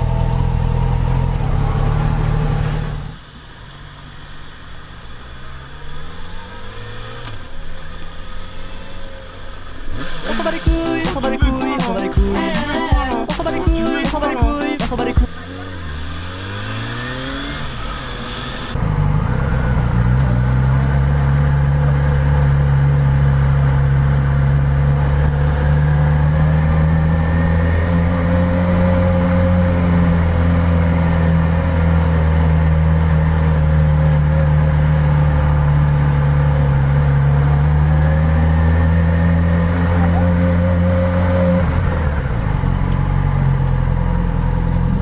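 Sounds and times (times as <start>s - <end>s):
motorcycle engine running: 39.3s - 40.8s.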